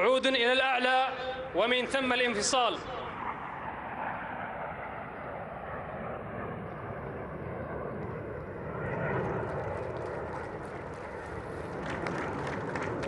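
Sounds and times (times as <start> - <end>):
jet engines rushing: 0.0 - 13.0.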